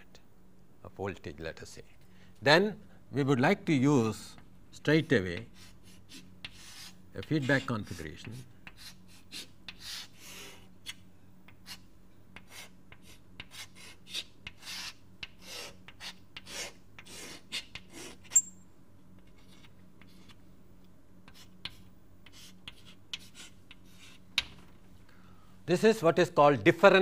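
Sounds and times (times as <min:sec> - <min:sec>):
faint electrical hum: 0:00.0 - 0:27.0
pen scratching on paper: 0:05.6 - 0:08.0, 0:08.8 - 0:10.6, 0:12.5 - 0:18.4, 0:21.3 - 0:24.2.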